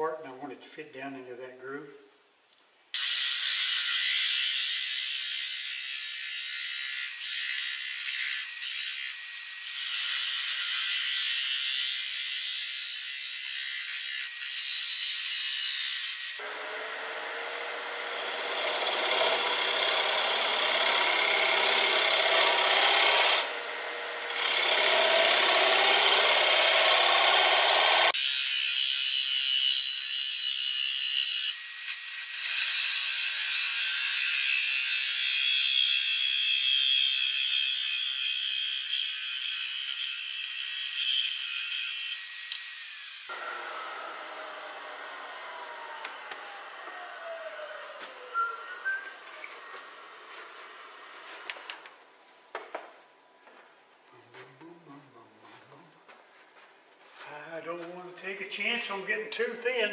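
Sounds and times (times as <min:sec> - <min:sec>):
lathe tool scraping wood: 0:13.1 - 0:28.2.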